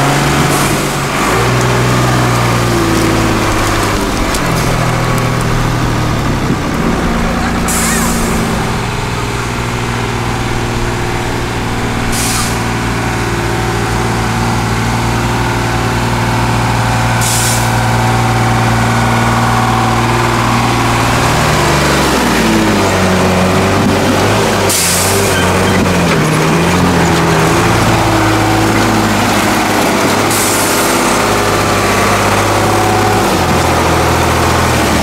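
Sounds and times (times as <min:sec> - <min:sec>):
truck engine under load: 0:00.0 - 0:35.0
air brake hisses: 0:07.7 - 0:08.5, 0:12.1 - 0:12.7, 0:17.2 - 0:17.7.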